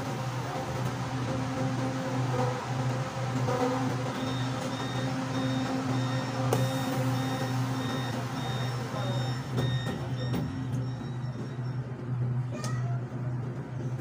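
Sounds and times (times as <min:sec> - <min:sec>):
train car hum: 0:00.0 - 0:14.0
electronic warning beeps: 0:04.1 - 0:12.3.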